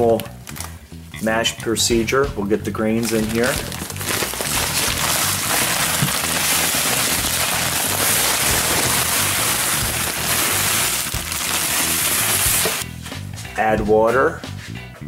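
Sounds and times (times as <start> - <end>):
background music: 0.0 - 15.0
grain pouring into plastic bucket: 3.0 - 12.8.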